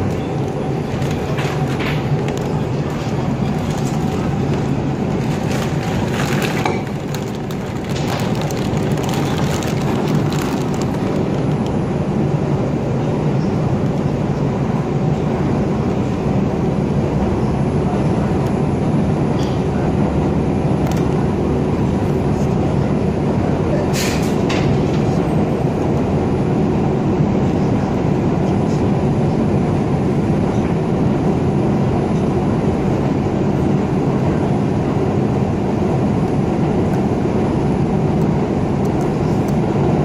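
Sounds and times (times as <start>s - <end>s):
subway wheels rumbling on rail: 0.0s - 40.0s
sharp clicks and clatter: 5.2s - 11.7s.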